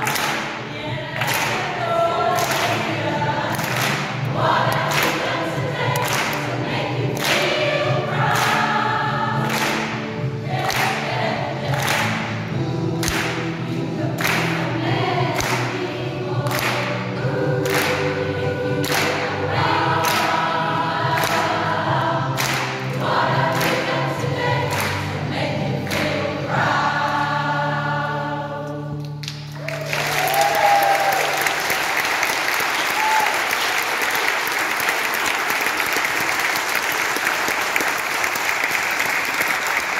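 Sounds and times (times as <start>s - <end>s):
sharp rhythmic claps: 0.0s - 8.8s, 9.4s - 25.2s, 25.8s - 26.5s, 29.2s - 39.9s
choir singing in harmony: 0.0s - 37.4s
audience applause: 29.5s - 39.9s
audience whoops: 29.6s - 31.9s, 32.6s - 33.9s.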